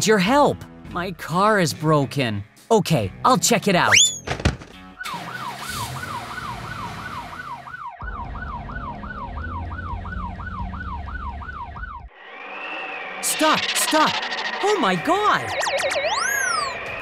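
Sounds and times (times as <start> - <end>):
police siren: 5.0 - 17.0.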